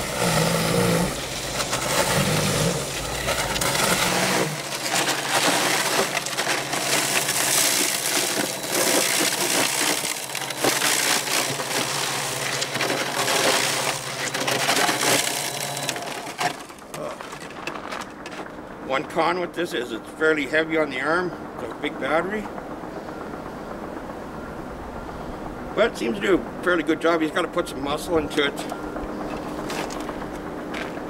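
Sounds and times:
electric motor hum: 0.0 - 18.8.

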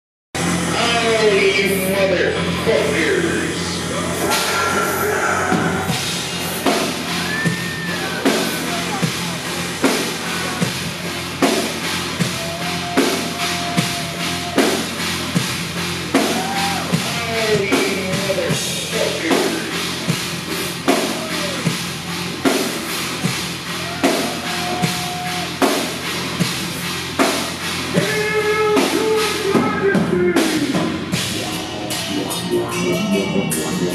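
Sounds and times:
industrial metal band playing: 0.4 - 33.9
gliding pitched lines: 2.4 - 12.2, 31.2 - 33.9
heavy drum hits: 4.2 - 31.6.

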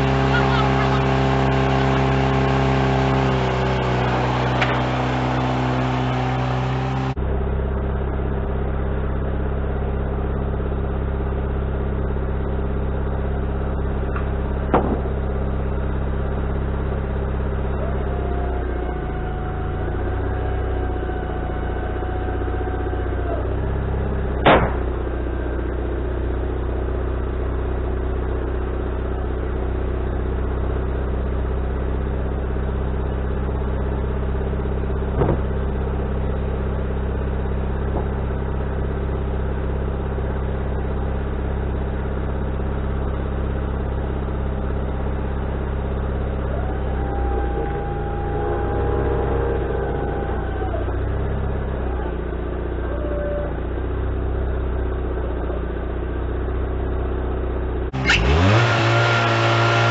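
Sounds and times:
sawmill engine running: 0.0 - 27.6, 41.9 - 59.9
sharp knocks: 14.7 - 15.1, 24.4 - 24.8.

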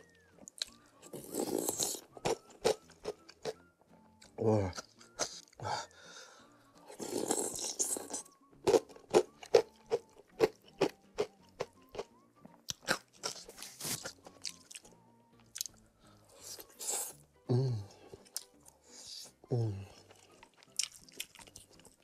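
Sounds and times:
wet chewing: 19.9 - 22.0.

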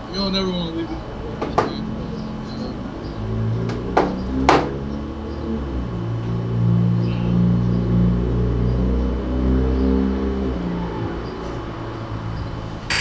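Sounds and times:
sharp knocks: 1.4 - 1.8, 3.6 - 4.8.

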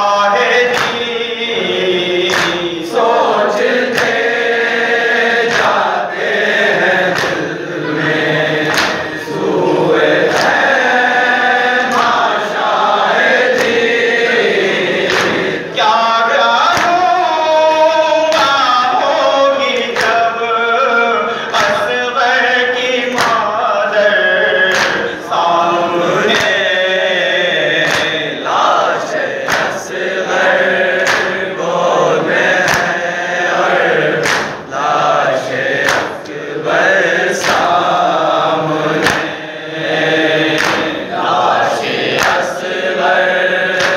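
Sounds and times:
group of men and boys chanting: 0.0 - 43.9
man reciting into a microphone: 0.0 - 43.9
hands slapping chests: 0.7 - 1.1, 2.2 - 2.8, 3.6 - 4.4, 5.4 - 7.6, 8.5 - 10.8, 11.8 - 12.4, 13.2 - 14.0, 15.0 - 15.6, 16.7 - 17.0, 19.9 - 20.2, 23.1 - 23.4, 24.7 - 25.2, 26.3 - 26.7, 27.8 - 28.4, 29.0 - 30.0, 30.9 - 31.6, 32.5 - 33.0, 34.1 - 34.7, 35.6 - 36.4, 37.4 - 38.1, 38.9 - 39.4, 40.4 - 41.4, 42.0 - 42.8.

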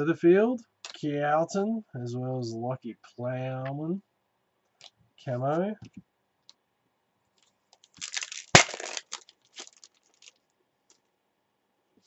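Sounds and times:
foil wrapper tearing and crinkling: 7.8 - 10.4
wrapper sharp snap: 7.8 - 10.4.

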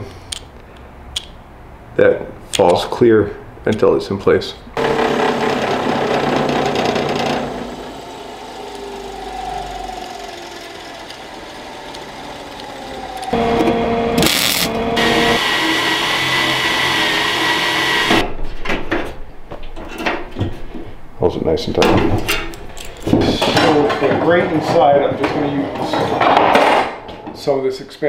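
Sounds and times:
belt sander grinding metal: 4.8 - 18.2
cordless drill boring through metal: 4.8 - 18.2.

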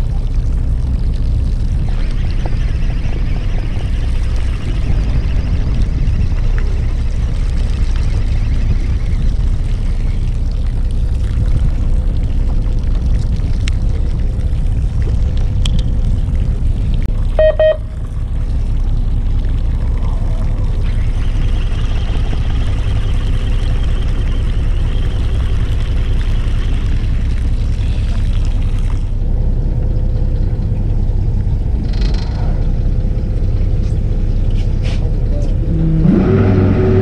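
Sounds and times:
boat engine rumbling: 0.0 - 37.0
short electronic beep: 17.4 - 18.0.

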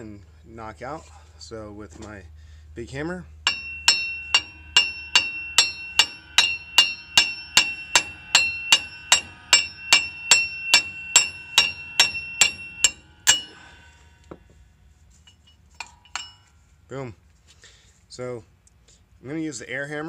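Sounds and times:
hammer striking steel: 3.4 - 14.4, 15.8 - 16.5.

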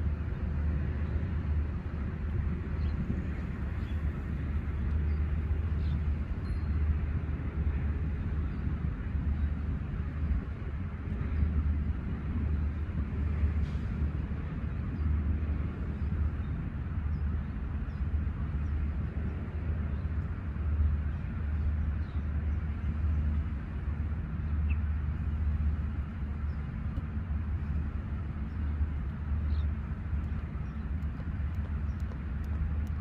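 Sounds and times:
low outdoor rumble: 0.0 - 33.0.

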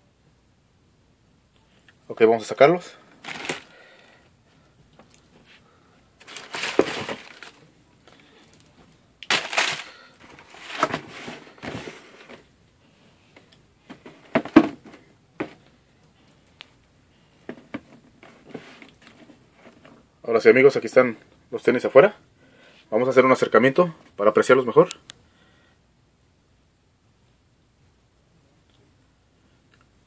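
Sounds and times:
tissue paper rustling: 3.2 - 3.7, 6.2 - 7.6, 9.3 - 12.4.

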